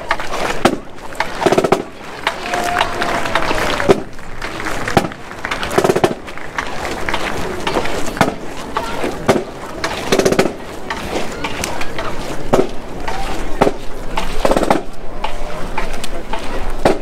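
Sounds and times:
rattling drum strikes: 0.6 - 2.4.

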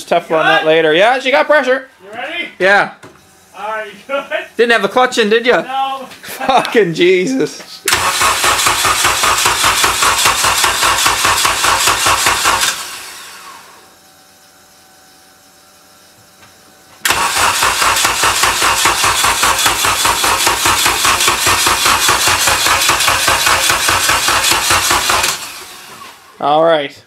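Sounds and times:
engine cranking without starting: 7.9 - 13.6, 17.0 - 26.3.

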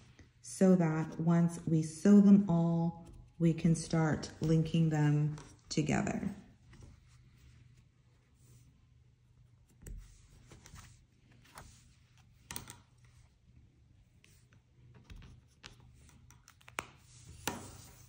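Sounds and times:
small clicks and taps of pins: 12.4 - 13.0.

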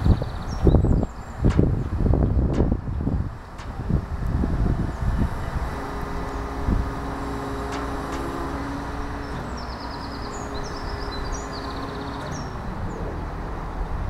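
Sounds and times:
diesel engine low hum: 0.0 - 14.0
wind rumbling on microphone: 0.0 - 14.0
bird chirps: 9.2 - 13.1.

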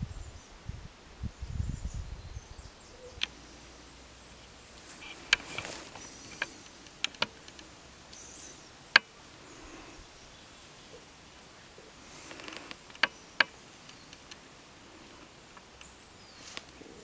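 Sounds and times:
wind buffeting microphone: 0.0 - 2.8
sharp clicks: 5.0 - 8.2, 12.3 - 14.4.

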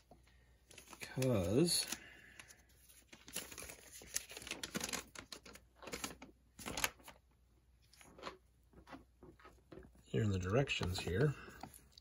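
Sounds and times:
paper crackling: 0.7 - 7.2.

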